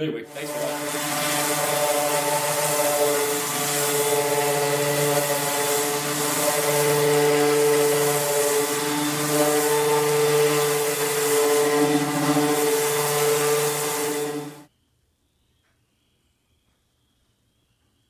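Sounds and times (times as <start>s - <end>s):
orbital sander motor hum: 0.2s - 14.7s
sanding pad hissing on surface: 0.3s - 14.7s.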